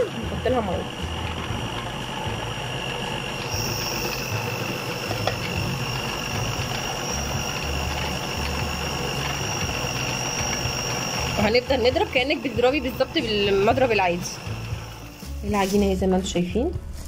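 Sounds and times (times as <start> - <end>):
stand mixer motor whining: 0.0 - 15.5.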